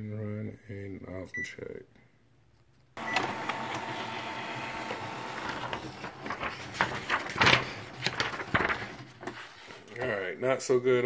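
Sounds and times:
inkjet printer printing: 3.0 - 8.9.

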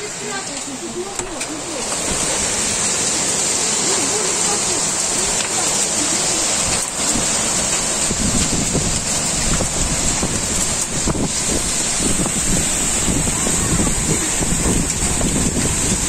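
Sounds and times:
gusty wind buffeting microphone: 0.0 - 3.8, 4.4 - 16.0
heavy downpour: 0.0 - 16.0.

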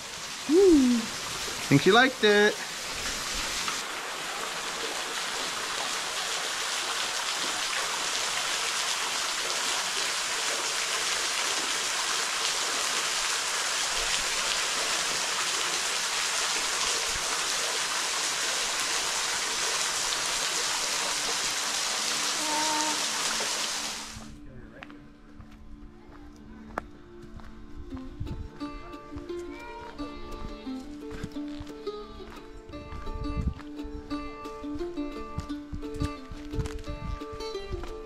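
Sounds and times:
waterfall splashing on rock: 0.0 - 24.3.

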